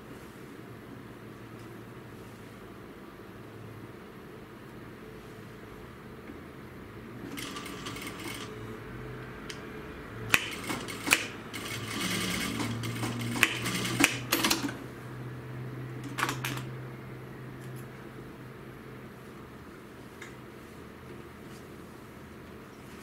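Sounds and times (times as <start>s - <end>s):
sewing machine stitching: 7.3s - 8.5s, 10.3s - 14.8s.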